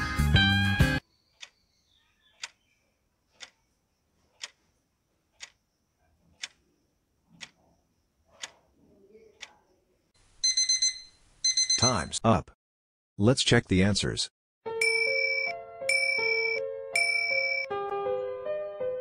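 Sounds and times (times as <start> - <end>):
clock ticking: 3.4 - 3.6, 4.4 - 4.6, 5.4 - 5.6, 6.4 - 6.6, 7.4 - 7.6, 8.4 - 8.6.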